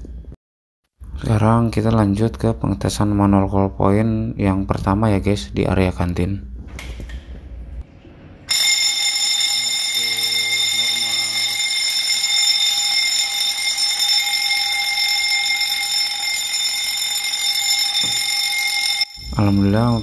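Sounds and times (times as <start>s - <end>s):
fire alarm bell ringing: 8.5s - 20.0s.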